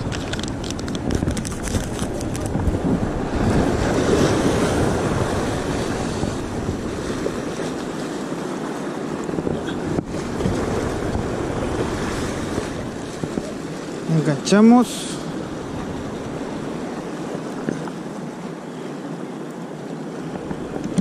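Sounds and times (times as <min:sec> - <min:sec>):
wind on microphone: 0:00.0 - 0:14.1, 0:20.1 - 0:21.0
surf washing onto sand: 0:00.0 - 0:21.0.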